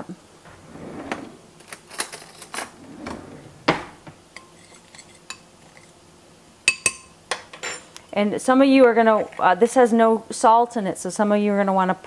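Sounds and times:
ceramic bowl and utensils clinking: 0:04.4 - 0:06.0, 0:06.7 - 0:07.9.

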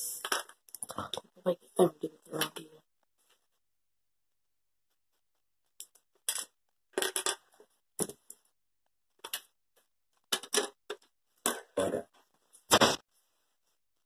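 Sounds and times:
toy bricks clicking on glass tabletop: 0:05.8 - 0:08.4, 0:10.3 - 0:11.0.

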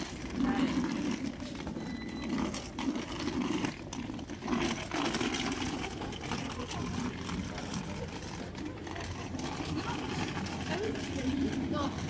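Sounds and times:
indistinct voices of passersby: 0:00.0 - 0:12.0
low murmuring: 0:02.4 - 0:12.0.

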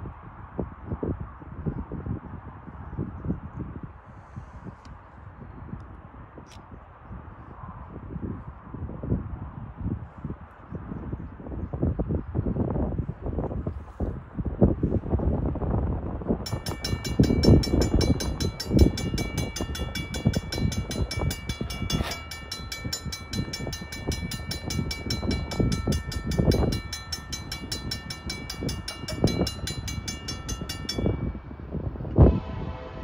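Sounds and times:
low rumbling gusts: 0:07.1 - 0:33.0
mechanical crossing bell ringing: 0:16.5 - 0:31.8
faint distant bell ringing: 0:16.5 - 0:32.1.

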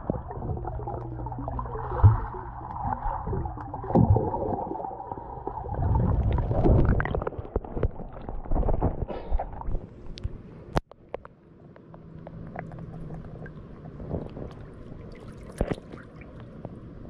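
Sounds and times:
water gurgling: 0:00.0 - 0:09.8, 0:12.1 - 0:17.0
underwater hum and rumble: 0:00.0 - 0:17.0.

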